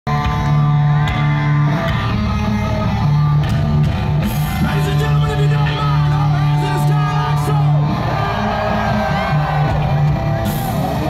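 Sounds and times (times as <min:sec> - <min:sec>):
live hard rock music: 0:00.1 - 0:11.0
crowd shouting: 0:06.0 - 0:11.0.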